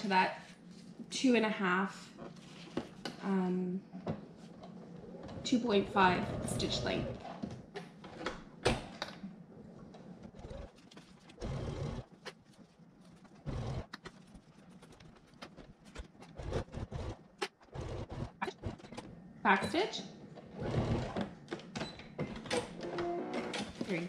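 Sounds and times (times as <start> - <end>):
sewing machine stitching: 10.2 - 12.1, 13.4 - 15.0, 15.6 - 19.1, 20.4 - 21.3.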